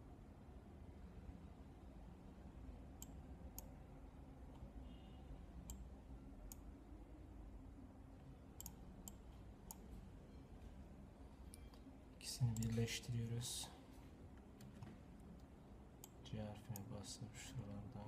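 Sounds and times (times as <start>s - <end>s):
faint low room hum: 0.0s - 18.0s
computer mouse clicking: 3.0s - 3.7s, 5.7s - 5.9s, 8.6s - 9.9s, 12.5s - 12.8s.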